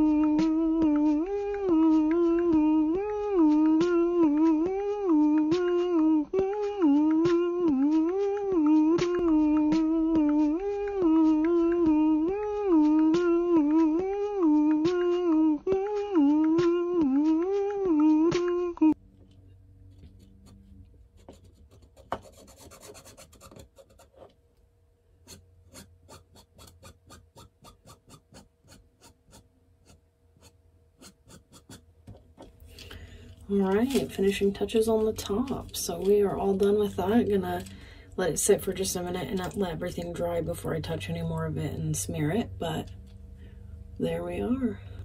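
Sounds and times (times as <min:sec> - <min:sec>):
person humming a tune: 0:00.0 - 0:19.0, 0:32.7 - 0:40.4
marker scratching on plastic: 0:20.0 - 0:24.3, 0:25.2 - 0:31.8, 0:33.5 - 0:37.7.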